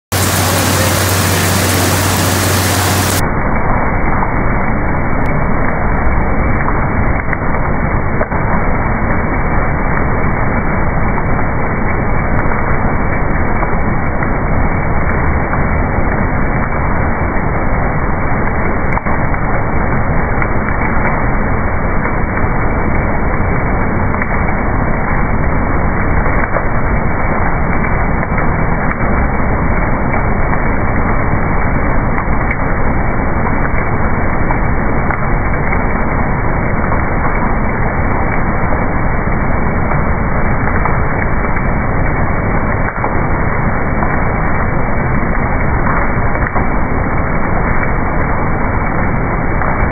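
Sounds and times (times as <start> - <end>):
food-processing machine running: 0.1 - 3.2
low machine rumble: 0.1 - 49.9.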